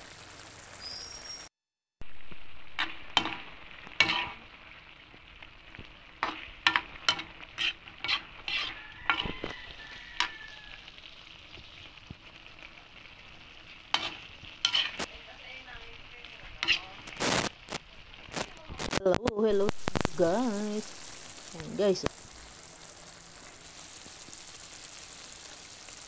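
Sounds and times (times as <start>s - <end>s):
stew sizzling in a pan: 0.0s - 26.0s
spatula scraping a pan: 2.7s - 4.8s, 5.7s - 11.9s, 13.1s - 15.2s, 16.2s - 19.0s.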